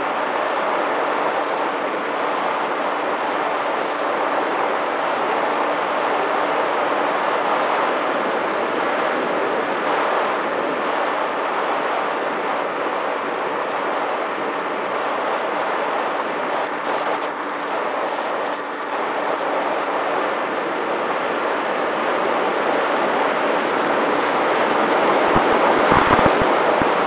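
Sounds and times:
faint electric motor hum: 0:25.0 - 0:27.0
rush of air: 0:25.3 - 0:27.0.

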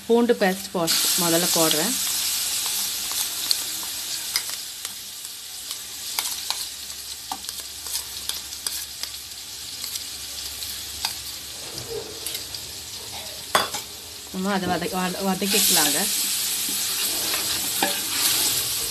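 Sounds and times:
onions sizzling in hot oil: 0:00.0 - 0:18.9
spoon scraping metal pot: 0:16.7 - 0:18.8.

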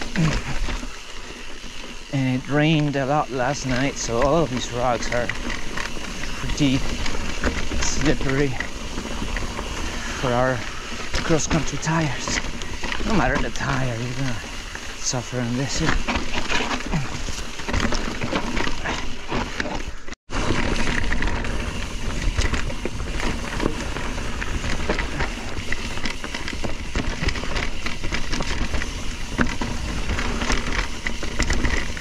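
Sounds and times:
bike rattling over rocks: 0:00.0 - 0:32.0
continuous rushing noise: 0:00.0 - 0:32.0.

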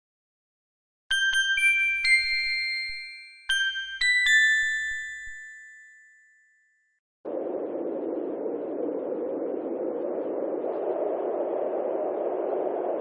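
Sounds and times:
bell-like chime notes: 0:01.1 - 0:06.9.

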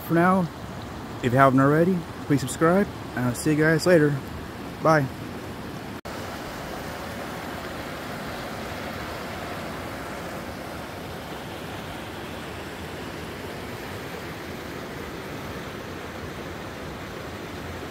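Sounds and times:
water rushing over rocks: 0:00.0 - 0:17.9.

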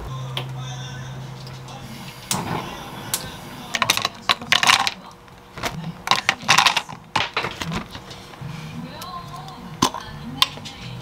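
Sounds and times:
frozen berries clattering into blender: 0:03.8 - 0:05.0, 0:06.1 - 0:07.9.

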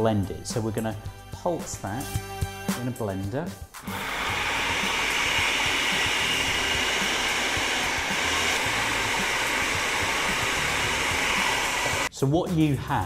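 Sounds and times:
food processor motor running: 0:03.8 - 0:12.1.

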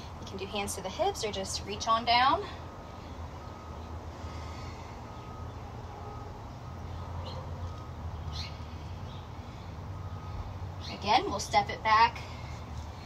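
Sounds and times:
bird chirps: 0:06.6 - 0:09.6.

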